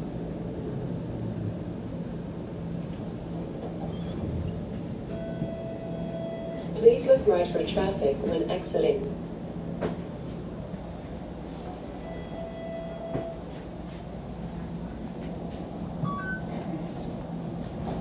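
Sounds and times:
streetcar interior hum: 0:00.0 - 0:18.0
two-note electronic chime: 0:16.0 - 0:16.5.

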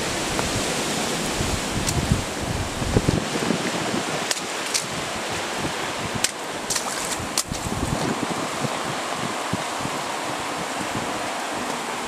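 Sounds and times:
heavy rain: 0:00.0 - 0:12.0
running stream water: 0:00.0 - 0:12.0.

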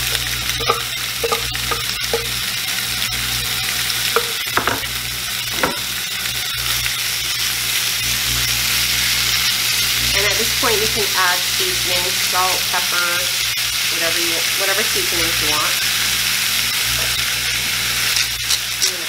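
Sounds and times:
chicken sizzling in a skillet: 0:00.0 - 0:19.0
utensils knocking against pan: 0:00.1 - 0:02.4, 0:04.1 - 0:05.9.

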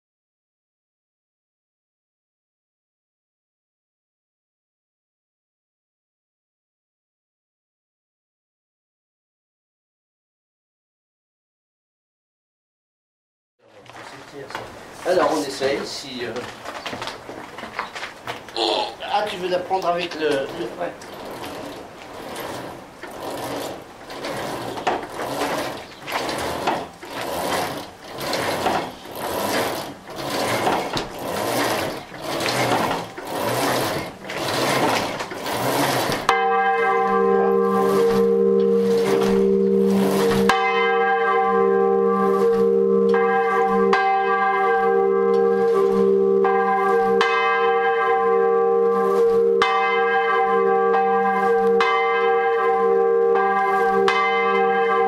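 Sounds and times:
rhythmic swishing of swinging bell: 0:25.3 - 0:55.0
church bell ringing: 0:33.2 - 0:55.0.

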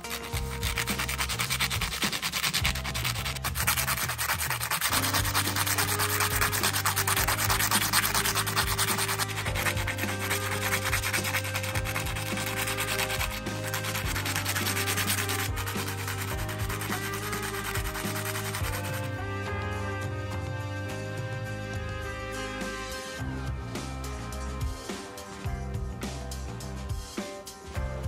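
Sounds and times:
metal scraping on sandpaper: 0:00.0 - 0:19.5.

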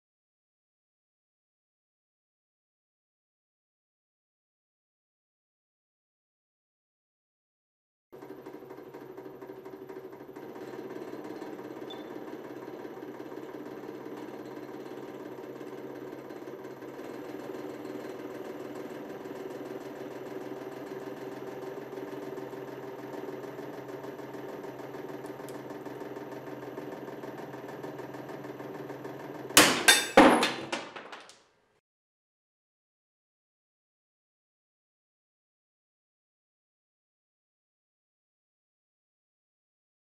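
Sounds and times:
sharp bangs of breaking metal: 0:29.6 - 0:31.3.

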